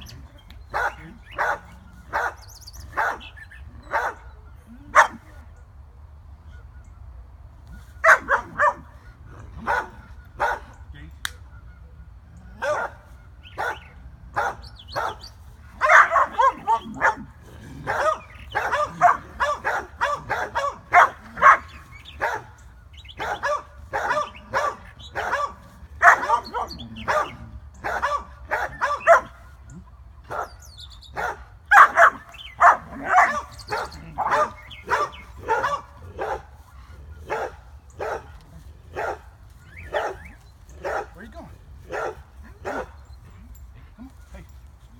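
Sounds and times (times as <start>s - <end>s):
dog barking: 0.7s - 4.3s, 4.9s - 5.3s, 8.0s - 8.9s, 9.6s - 10.8s, 12.6s - 22.6s, 23.2s - 29.4s, 30.3s - 36.5s, 37.2s - 41.3s, 41.9s - 43.0s.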